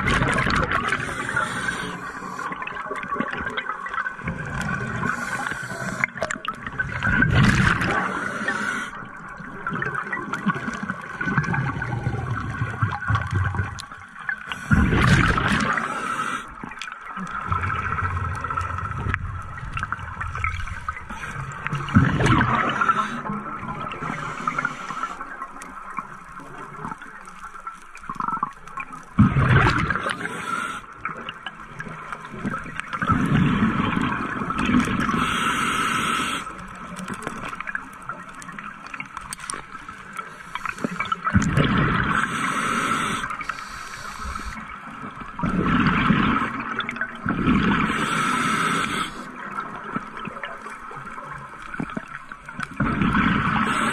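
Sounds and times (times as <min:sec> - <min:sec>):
exhaled bubbles underwater: 0:00.0 - 0:53.9
scuba regulator hiss: 0:00.9 - 0:02.6, 0:05.1 - 0:06.1, 0:08.0 - 0:09.0, 0:15.6 - 0:16.5, 0:24.0 - 0:25.2, 0:30.1 - 0:30.8, 0:35.2 - 0:36.5, 0:42.1 - 0:44.6, 0:47.9 - 0:49.3, 0:53.6 - 0:53.9.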